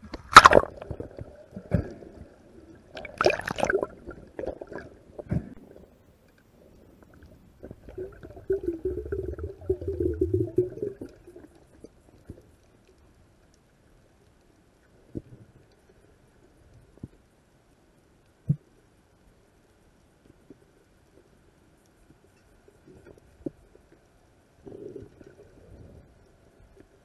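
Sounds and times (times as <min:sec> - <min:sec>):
underwater bubbling: 0:00.0 - 0:13.2
low underwater gurgling rumble: 0:00.0 - 0:13.4.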